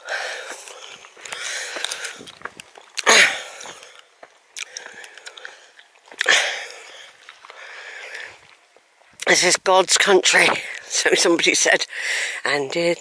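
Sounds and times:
person breathing heavily: 0.0s - 2.4s, 3.1s - 8.5s, 11.9s - 12.5s
footsteps on stony track: 0.0s - 11.8s.

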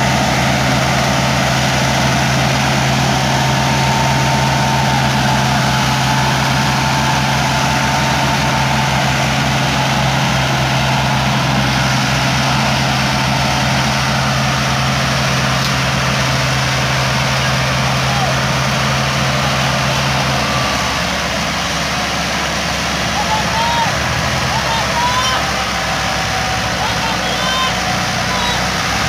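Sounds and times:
tractor diesel engine under load: 0.0s - 29.0s.

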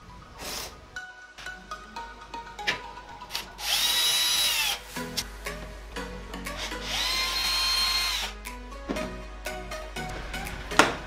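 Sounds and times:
cordless drill whining: 3.3s - 4.9s, 6.6s - 8.4s.

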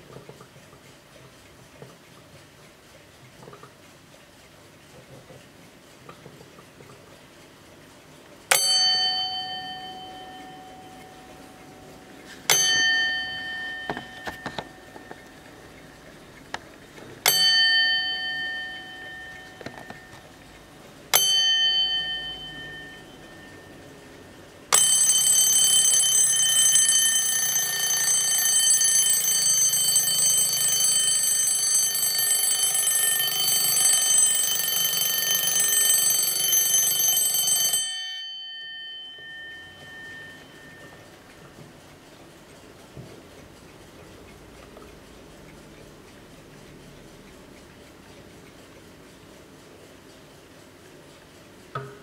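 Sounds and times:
alarm clock bell ringing continuously: 8.5s - 16.0s, 17.2s - 41.6s
alarm clock bell strokes: 8.5s - 16.0s, 17.2s - 41.5s.

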